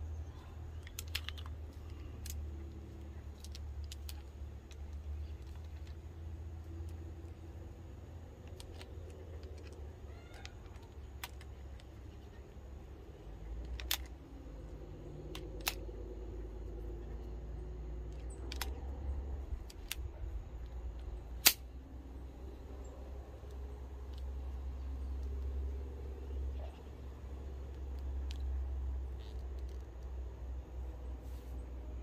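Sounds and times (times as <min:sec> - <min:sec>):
small metallic clicks: 0:00.2 - 0:21.8, 0:22.4 - 0:31.2
sharp metallic snap: 0:21.4 - 0:21.8.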